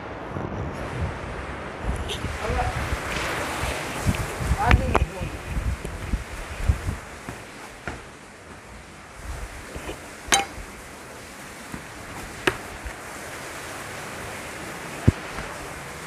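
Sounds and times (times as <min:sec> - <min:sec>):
steady hiss: 0:00.8 - 0:16.0
footsteps in plastic-soled shoes: 0:07.2 - 0:08.8, 0:11.7 - 0:13.0.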